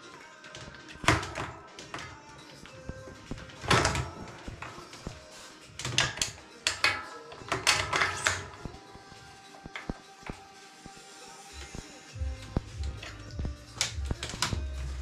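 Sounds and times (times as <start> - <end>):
faint background music: 0.0 - 15.0
objects knocking and rattling: 0.5 - 5.2, 5.8 - 8.8.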